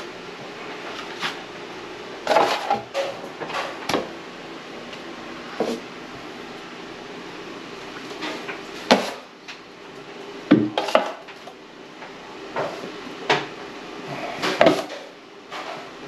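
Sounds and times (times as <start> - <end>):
drywall knife scraping: 2.2 - 2.9.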